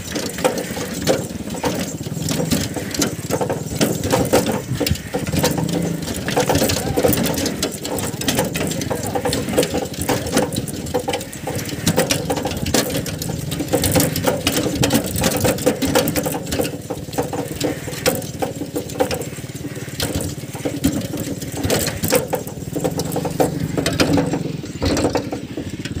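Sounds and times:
bullock cart rattling: 0.0 - 26.0
cart clicking and knocking: 0.0 - 26.0.

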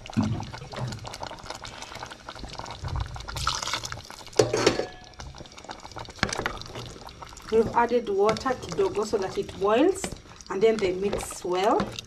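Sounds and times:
wooden spoon stirring stew: 5.2 - 12.0.

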